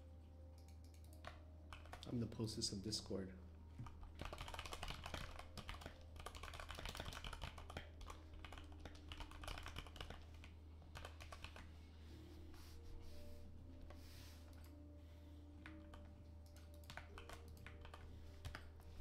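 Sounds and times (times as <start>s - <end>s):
fast typing on keyboard: 0.6s - 2.5s, 3.8s - 11.8s, 15.6s - 19.0s.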